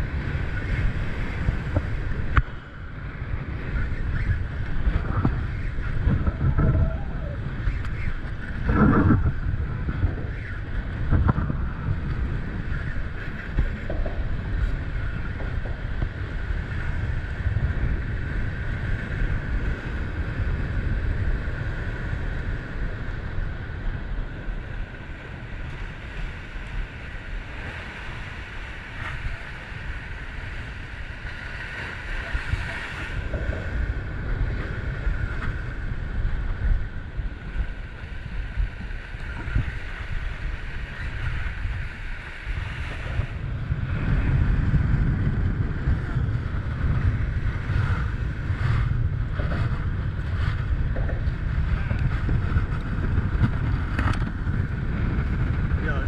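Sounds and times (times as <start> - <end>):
wind buffeting microphone: 0.0 - 56.0
surf breaking: 22.6 - 56.0.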